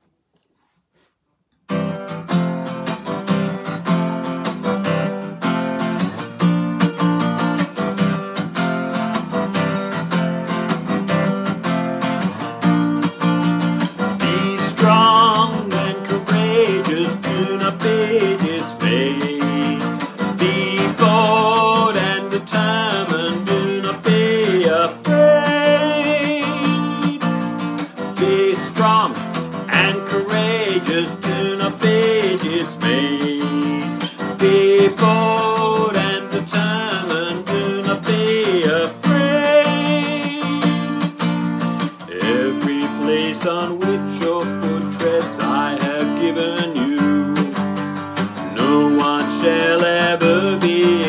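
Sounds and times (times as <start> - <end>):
acoustic guitar strumming chords: 1.7 - 51.0
man singing: 13.9 - 51.0.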